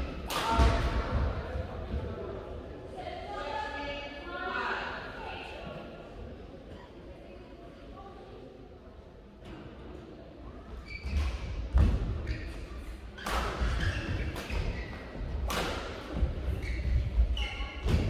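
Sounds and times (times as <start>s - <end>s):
racket striking shuttlecock: 15.4s - 15.9s.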